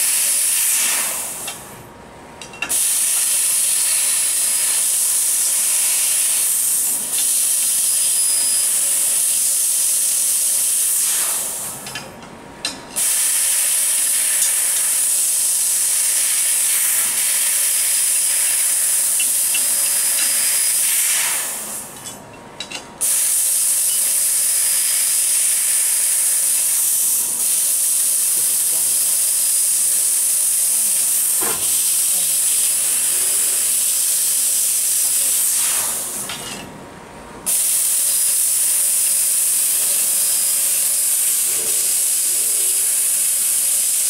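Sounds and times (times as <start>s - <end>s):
gas jet hissing from laser cutter: 0.0s - 1.7s, 2.6s - 12.0s, 13.0s - 22.2s, 23.0s - 36.6s, 37.4s - 44.0s.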